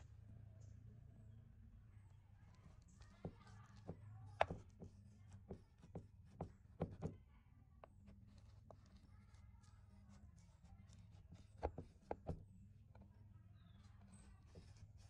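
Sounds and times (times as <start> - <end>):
cleaver tapping on metal tray: 3.0 - 7.2.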